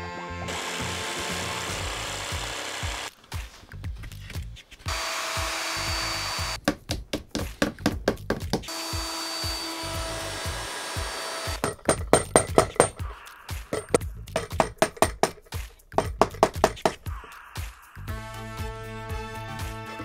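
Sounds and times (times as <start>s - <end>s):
electric router cutting wood: 0.0s - 3.1s, 4.9s - 6.6s, 8.7s - 11.6s
background music with steady beat: 1.7s - 20.0s.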